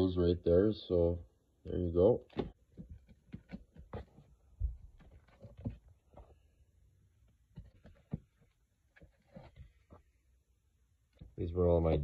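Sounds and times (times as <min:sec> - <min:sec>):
comic books flipped by hand: 0:02.3 - 0:06.4, 0:07.5 - 0:10.1.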